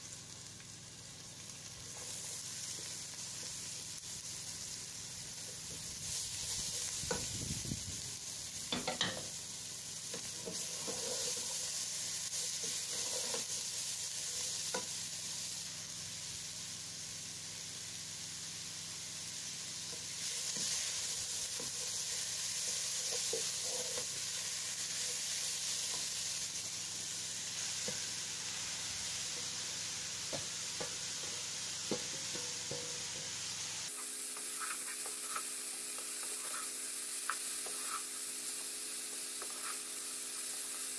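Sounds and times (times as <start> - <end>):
vegetables sizzling in pan: 0.0 - 40.9
wooden spatula scraping pan: 34.4 - 38.1, 39.4 - 39.9.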